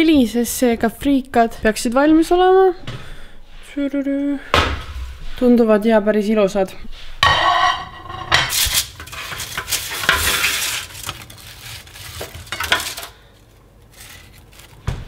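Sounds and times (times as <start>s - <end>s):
wooden utensils scraping baking tray: 7.2s - 14.9s
fries dropping onto glass plate: 8.5s - 13.2s.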